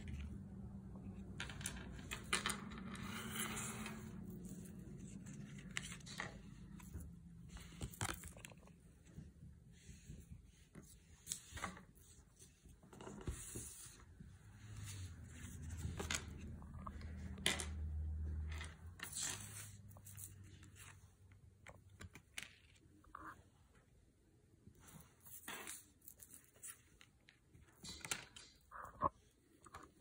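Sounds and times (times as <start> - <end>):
cards sliding and tapping on table: 12.9 - 14.0.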